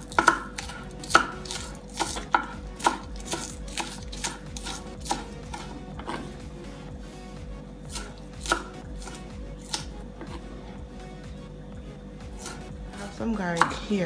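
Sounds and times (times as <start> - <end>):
knife chopping on wooden board: 0.0 - 6.3, 7.9 - 10.4, 12.4 - 12.6, 13.6 - 13.8.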